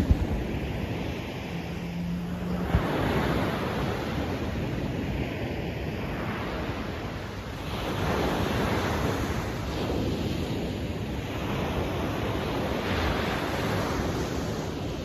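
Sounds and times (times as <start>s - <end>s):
ocean surf breaking: 0.0s - 6.8s.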